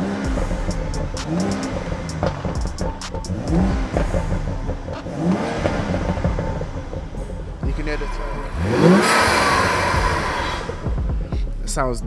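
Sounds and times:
car engine revving from idle: 0.0 - 11.2.

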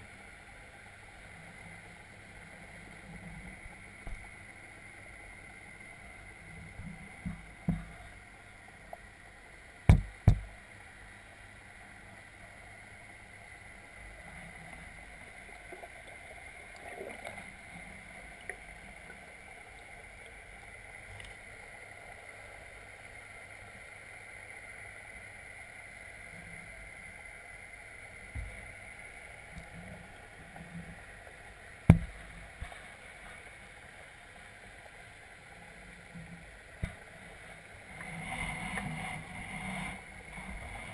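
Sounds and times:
muffled underwater hum: 0.0 - 40.9
sharp underwater knocks: 9.9 - 10.5, 31.9 - 32.7.

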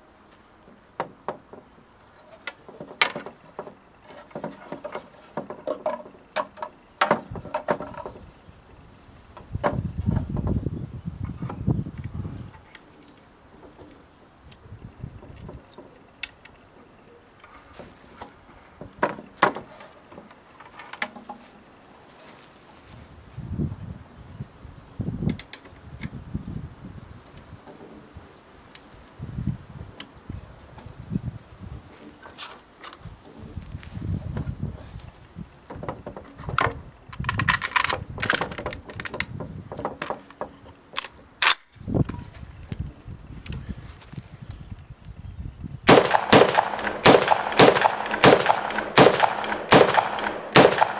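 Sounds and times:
rifle clicks and knocks: 35.7 - 42.2.

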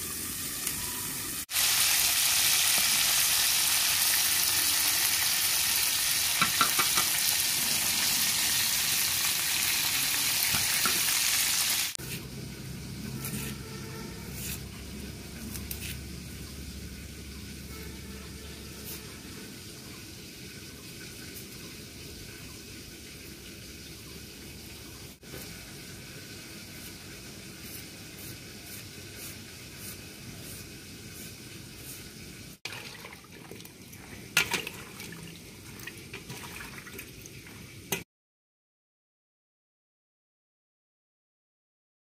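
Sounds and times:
knife scraping vegetables: 12.0 - 12.3, 13.1 - 16.2, 18.7 - 19.2, 27.6 - 32.2.

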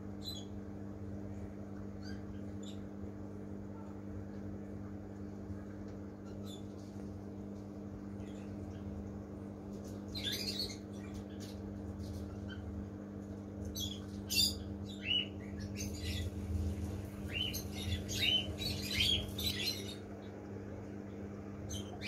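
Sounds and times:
filter pump hum: 0.0 - 22.0
birds chirping and squawking: 9.8 - 12.8, 13.6 - 20.2, 21.7 - 22.0.

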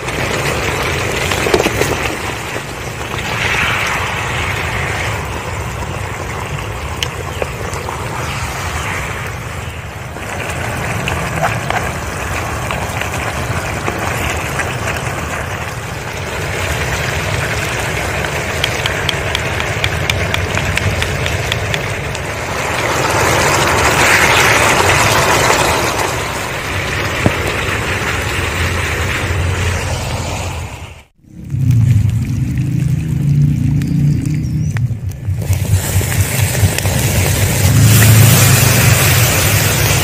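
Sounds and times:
fish sizzling in a frying pan: 35.3 - 40.0.

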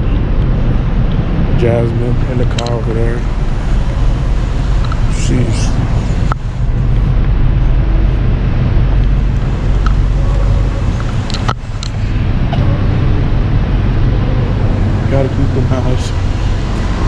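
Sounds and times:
low rumble of vehicle traffic: 0.0 - 17.0.

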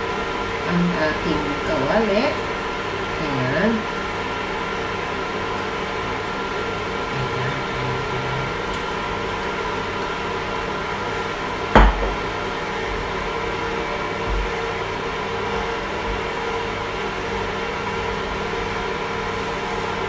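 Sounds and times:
induction cooktop hum and fan: 0.0 - 20.0
sharp knock: 11.8 - 12.2.

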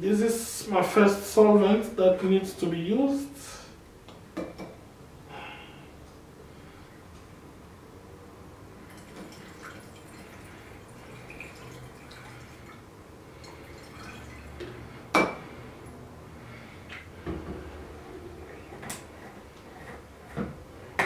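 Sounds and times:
liquid pouring through funnel: 8.9 - 14.6.

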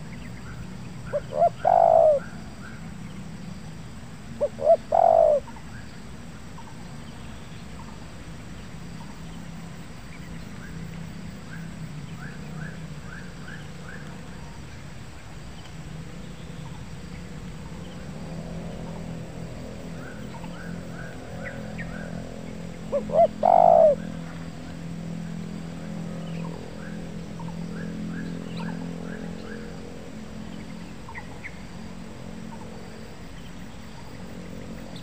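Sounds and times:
small birds chirping: 0.0 - 25.4, 26.1 - 35.0
dove cooing: 1.1 - 2.4, 4.4 - 5.5, 22.8 - 24.2.

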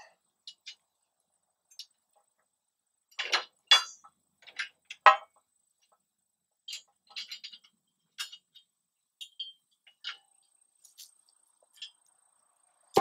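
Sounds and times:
metal clanks and clinks: 3.1 - 5.3, 6.7 - 12.1.

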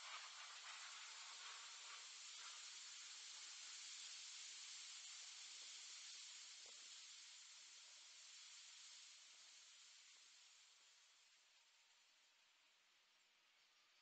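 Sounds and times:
faint microphone hiss: 0.0 - 14.0.

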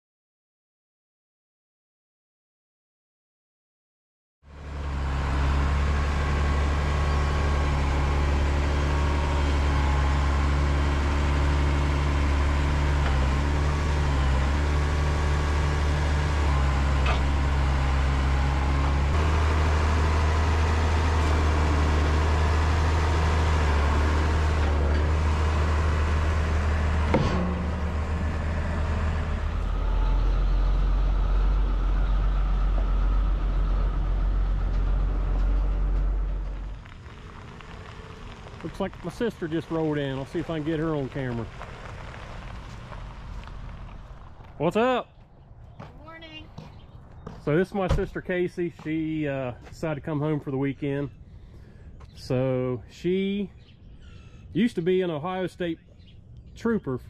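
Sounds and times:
tractor engine running: 4.5 - 45.0.

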